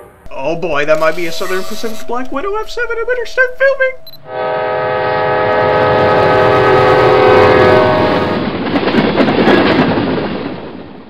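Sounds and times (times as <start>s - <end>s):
locomotive air horn chord: 0.0s - 0.3s, 4.2s - 8.4s
freight cars rumbling and rattling: 0.0s - 4.2s, 7.8s - 11.0s.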